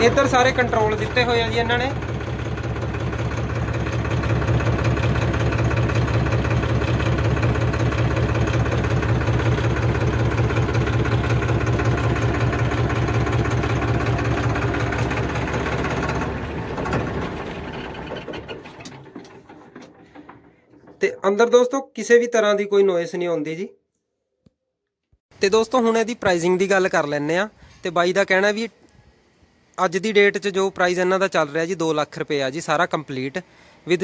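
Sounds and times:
tractor diesel engine idling: 0.0 - 21.2.

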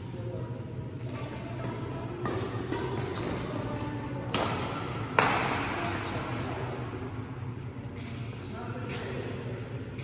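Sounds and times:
court shoes squeaking on floor: 1.0 - 4.4, 5.8 - 7.2, 8.0 - 9.2
badminton rackets hitting shuttlecock: 1.5 - 6.7.

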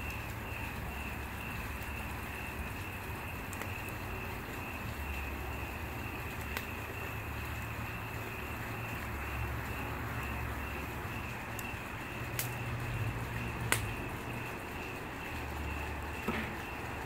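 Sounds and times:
crackling wood pops: 0.0 - 7.1, 11.2 - 12.7, 13.4 - 14.9, 16.1 - 16.8
wood fire hissing: 0.0 - 17.0.

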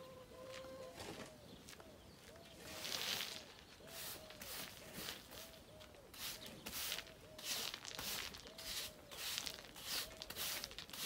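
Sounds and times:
broom sweeping gravel: 2.6 - 11.0.

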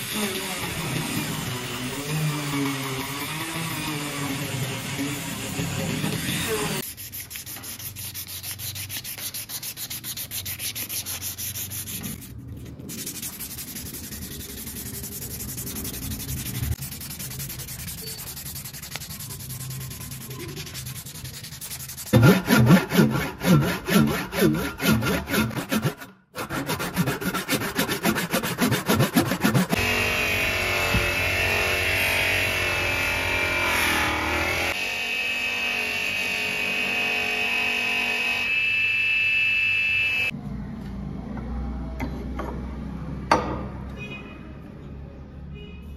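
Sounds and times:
sanding rubbing strokes: 1.1 - 29.8.

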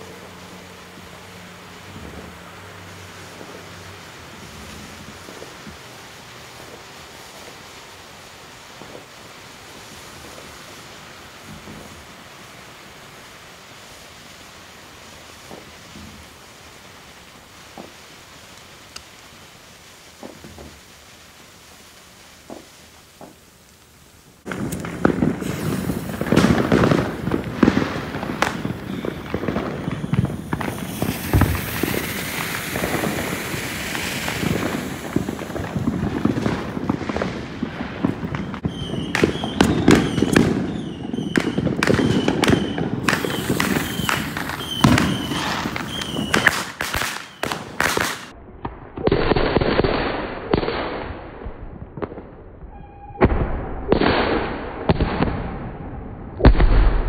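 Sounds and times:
fireworks hissing: 0.0 - 48.4
firecrackers popping and crackling: 0.0 - 57.0.

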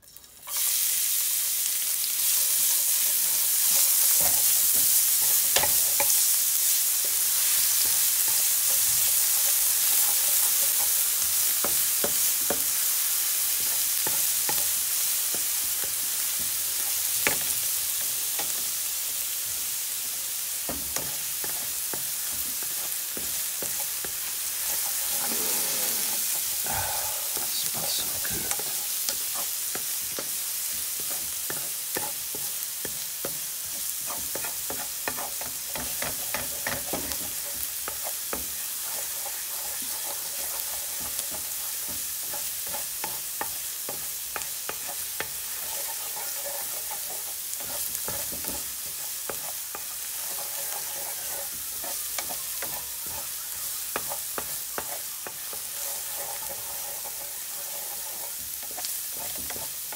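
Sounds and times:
garlic sizzling in hot oil: 0.0 - 59.9
spatula scraping a pan: 20.6 - 26.7, 27.3 - 59.9.

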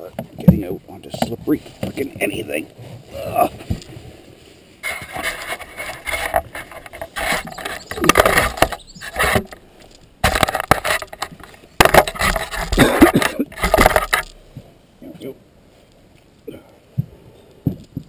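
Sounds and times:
scraping and knocking on wet log: 0.1 - 2.4, 4.8 - 14.7.

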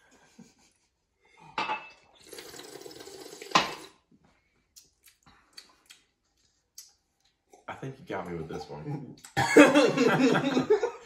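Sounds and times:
liquid slurped in mouth: 2.2 - 4.0.

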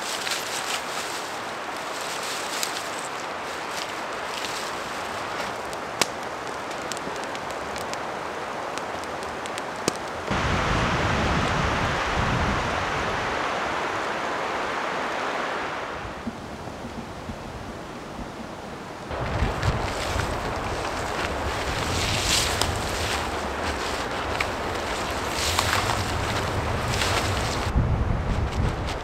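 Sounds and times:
campfire crackling and popping: 3.8 - 10.4, 19.1 - 27.7
rushing noise with low rumble: 10.3 - 18.4, 19.1 - 29.0.

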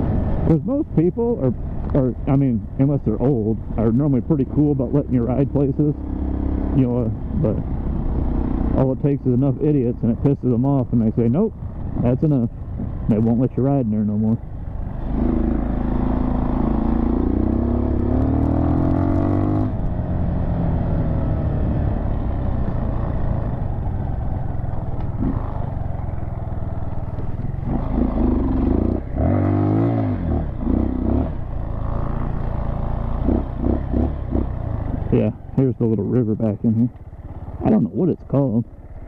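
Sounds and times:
dirt bike engine revving: 3.8 - 11.4, 14.9 - 23.7, 24.9 - 38.1.

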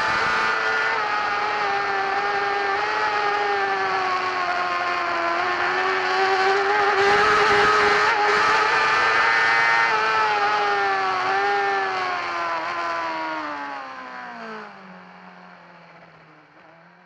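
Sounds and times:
motorcycle engine at high revs: 0.0 - 17.0
wind and road noise: 0.0 - 17.0.

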